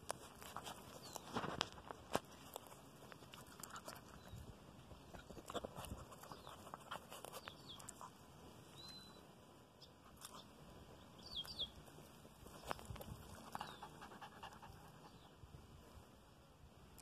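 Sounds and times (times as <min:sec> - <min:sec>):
dog chewing grass: 0:00.0 - 0:08.2.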